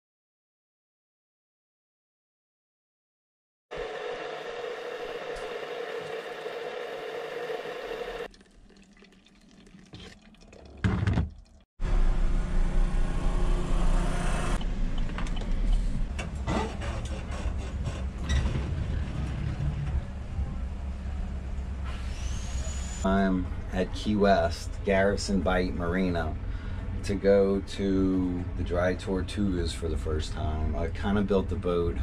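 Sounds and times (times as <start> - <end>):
steady hum: 3.7 - 8.3
truck road rumble inside cab: 11.8 - 21.9.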